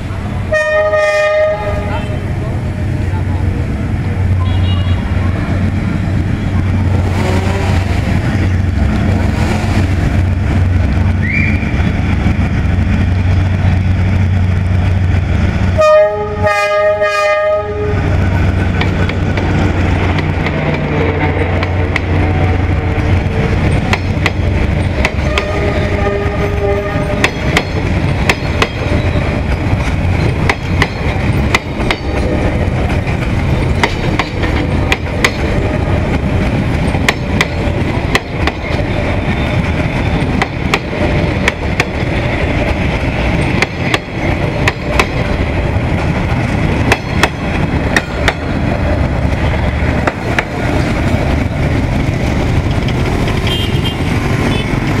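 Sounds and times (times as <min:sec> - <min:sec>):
train coaches rumbling past: 0:00.0 - 0:55.0
wheels clacking on rail joints: 0:18.3 - 0:55.0.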